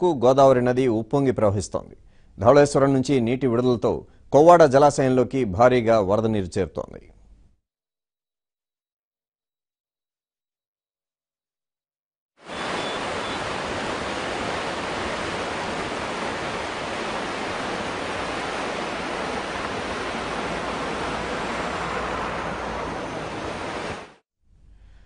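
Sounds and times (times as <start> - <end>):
floodwater rushing: 12.4 - 24.2.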